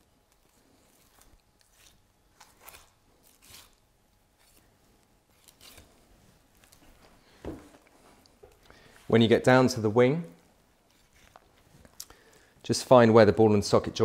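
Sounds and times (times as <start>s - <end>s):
knife scraping bone: 0.3s - 3.8s, 4.4s - 4.7s, 5.3s - 6.0s.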